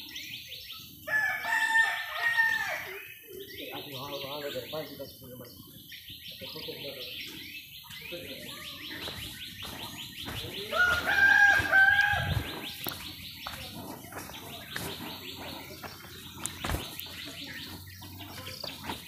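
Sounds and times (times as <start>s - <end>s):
rooster crowing: 1.1s - 3.0s, 10.7s - 12.5s.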